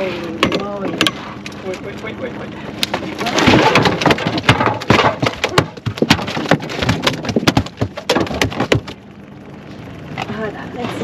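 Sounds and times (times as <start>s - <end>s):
fish flopping and slapping: 2.8s - 9.1s.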